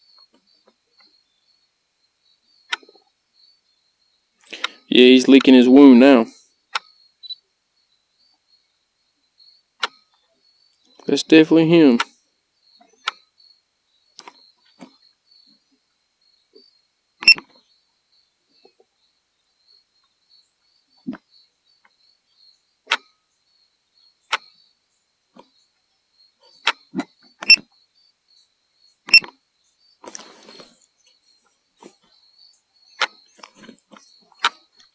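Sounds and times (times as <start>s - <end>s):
handling rustle: 30.0s - 30.8s, 33.3s - 34.3s.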